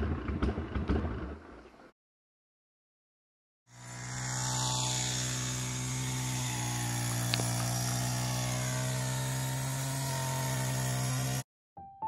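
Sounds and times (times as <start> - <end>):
brush cutter engine running: 3.7 - 11.4.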